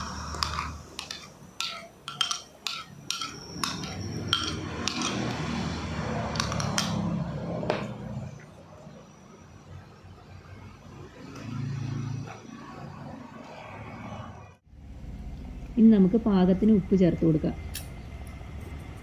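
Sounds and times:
spoon clinking against cookware: 0.0s - 5.5s.

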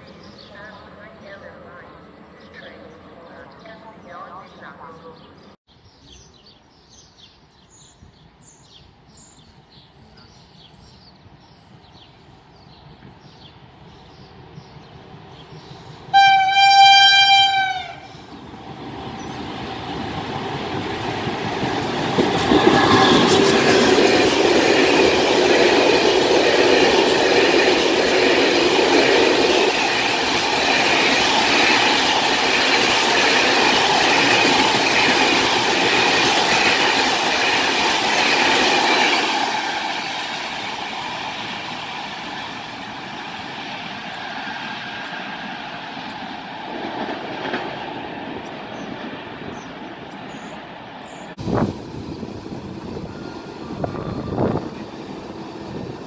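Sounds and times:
freight train passing: 0.0s - 6.3s, 6.9s - 56.0s
small birds chirping: 0.0s - 16.0s, 48.5s - 51.4s
train horn: 16.1s - 18.3s, 22.6s - 23.7s.

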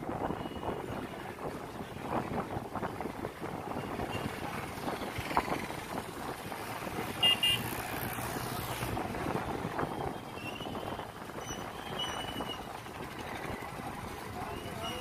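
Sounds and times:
vehicle engine and road noise: 0.0s - 15.0s
vehicle horn beeping: 7.2s - 7.8s.

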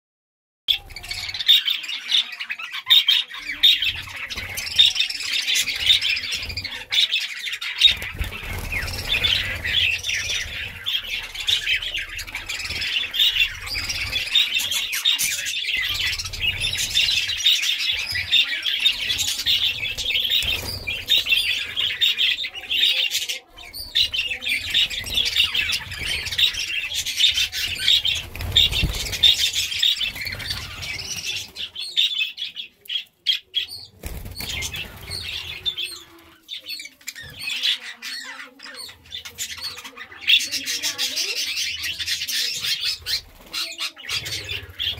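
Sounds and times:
budgerigars chattering: 0.7s - 44.9s
wing flutters: 5.6s - 22.2s, 23.9s - 31.6s, 33.9s - 36.0s.

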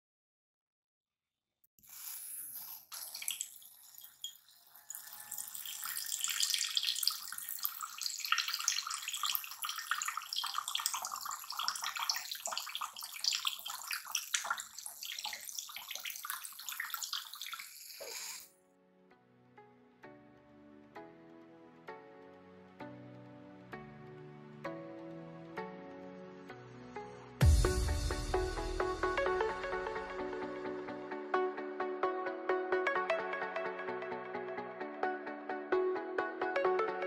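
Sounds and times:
water splashing into a bowl: 2.6s - 18.4s.

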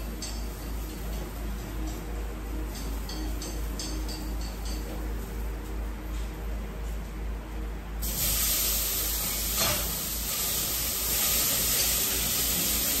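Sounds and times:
loud cooking hiss: 8.0s - 13.0s.

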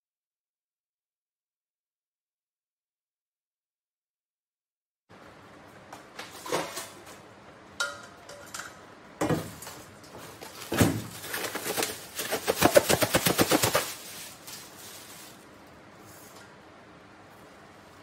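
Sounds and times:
leaves falling into steel bowl: 10.4s - 15.4s
plastic bag crinkling: 10.4s - 15.7s.

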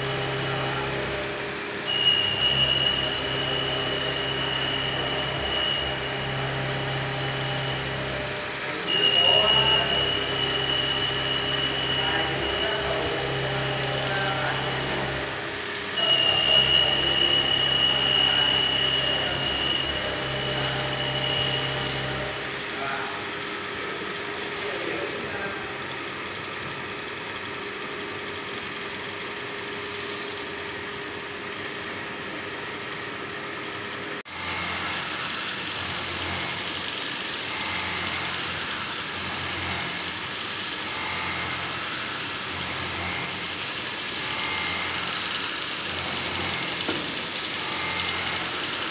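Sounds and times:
machines humming: 0.0s - 22.7s, 30.8s - 48.9s
high machine whine: 0.0s - 23.2s, 27.7s - 48.9s
short high beeps: 27.7s - 34.4s.

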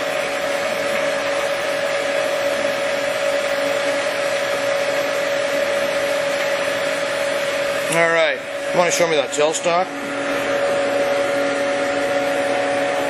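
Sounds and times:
lathe running with whine: 0.0s - 13.0s.

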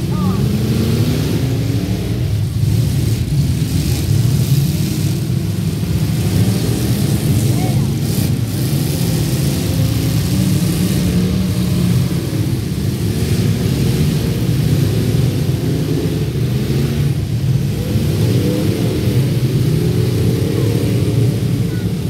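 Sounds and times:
car engines revving: 0.0s - 22.0s.

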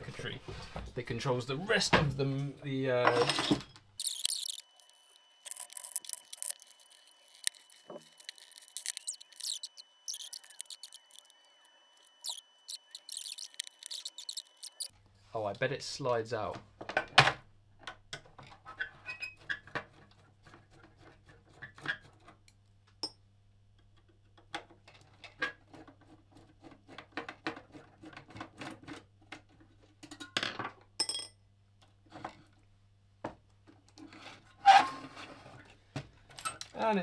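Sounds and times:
screwdriver clicking and scraping metal: 4.0s - 11.3s, 12.2s - 14.9s.

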